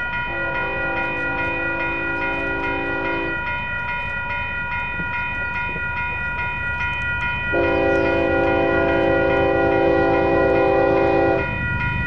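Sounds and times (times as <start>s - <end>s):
crossing warning bell ringing: 0.0s - 12.0s
locomotive air horn chord: 0.3s - 3.5s, 7.5s - 11.5s.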